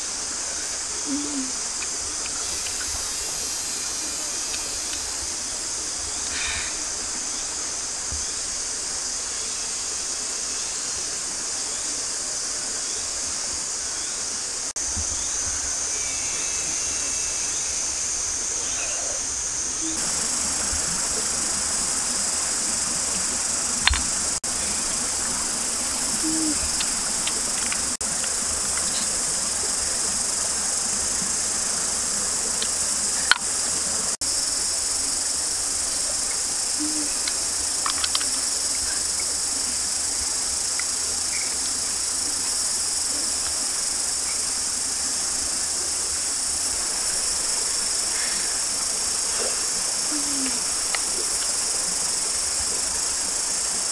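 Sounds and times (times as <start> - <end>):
insects chorus: 0.0 - 53.9
sharp clicks: 23.8 - 24.2, 26.7 - 28.4, 37.2 - 38.4.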